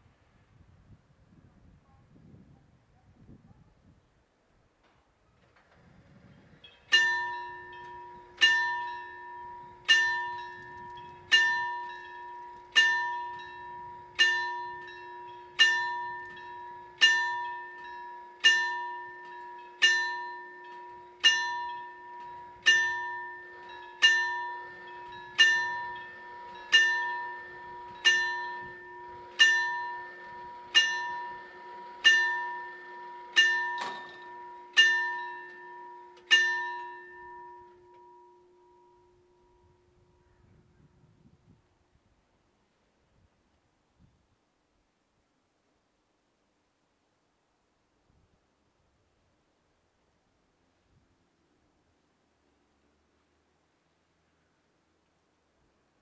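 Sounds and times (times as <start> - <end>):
level-crossing warning bell ringing: 6.6 - 40.3.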